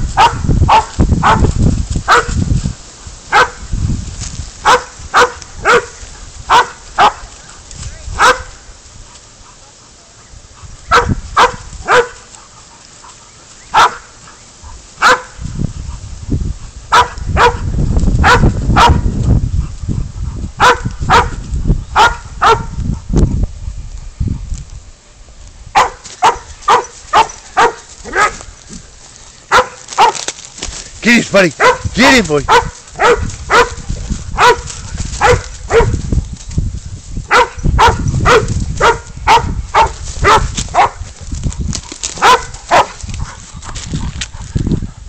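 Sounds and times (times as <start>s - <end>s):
dog barking: 0.2s - 1.5s, 2.1s - 2.4s, 3.3s - 3.6s, 4.6s - 7.2s, 8.2s - 8.6s, 10.9s - 12.2s, 13.7s - 14.1s, 15.0s - 15.4s, 16.9s - 19.1s, 20.6s - 21.4s, 22.0s - 22.8s, 25.7s - 28.5s, 29.5s - 30.2s, 31.6s - 31.9s, 32.5s - 33.8s, 34.4s - 36.0s, 37.3s - 41.0s, 42.2s - 43.4s.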